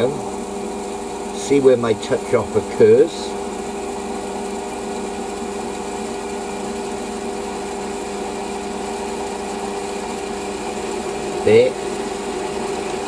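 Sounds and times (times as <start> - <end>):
lathe motor humming: 0.0 - 13.0.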